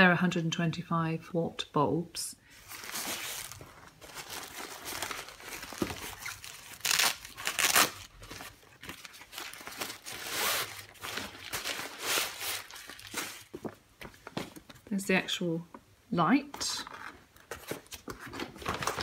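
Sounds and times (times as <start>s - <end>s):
fabric rustling and crinkling: 2.5s - 14.8s.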